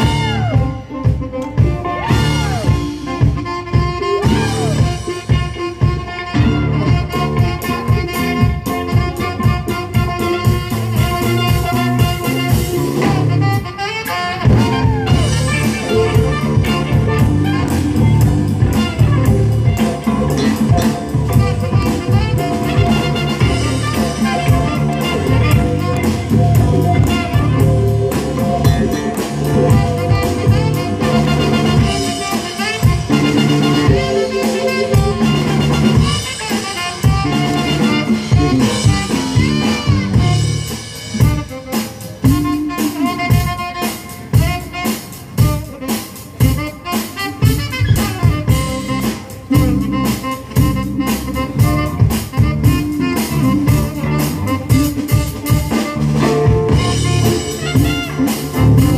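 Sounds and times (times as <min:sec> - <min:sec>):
bass guitar: 0:00.0 - 0:58.9
drum kit beat: 0:00.0 - 0:58.9
melody instrument playing: 0:14.4 - 0:40.4, 0:55.7 - 0:58.9.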